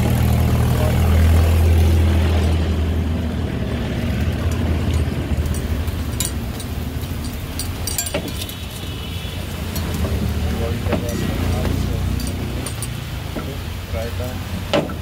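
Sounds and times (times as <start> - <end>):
vehicle engine humming: 0.0 - 15.0
metal tongs clicking on iron griddle: 4.5 - 8.7, 9.7 - 10.0, 12.1 - 13.0.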